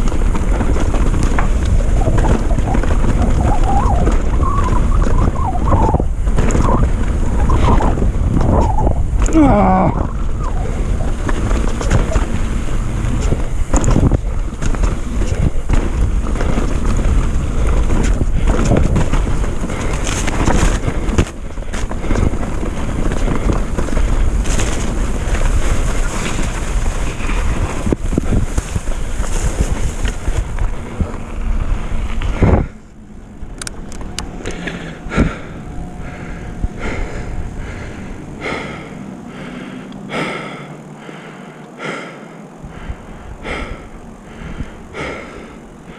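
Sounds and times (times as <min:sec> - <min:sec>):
bike tyres rattling on dirt: 0:00.0 - 0:45.9
wind buffeting microphone: 0:00.0 - 0:45.9.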